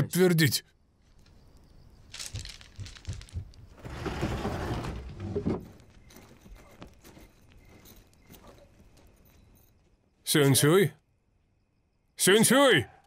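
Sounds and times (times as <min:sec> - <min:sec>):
bamboo slats rattling: 0:02.1 - 0:07.2.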